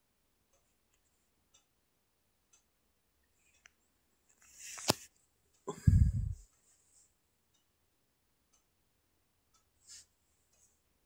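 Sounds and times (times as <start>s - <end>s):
faint ticks: 2.5s - 5.7s, 9.5s - 10.9s.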